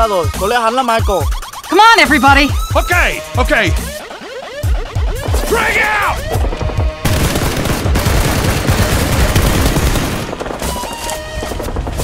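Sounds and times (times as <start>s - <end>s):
rapid automatic gunfire: 6.2s - 12.0s.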